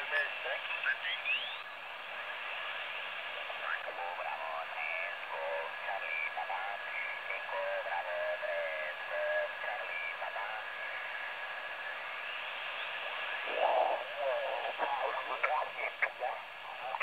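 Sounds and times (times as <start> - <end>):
steady radio whistle: 0.0 - 1.8, 3.4 - 16.0
radio band noise hiss: 0.0 - 17.0
garbled radio voice fragments: 3.6 - 11.2, 13.3 - 17.0.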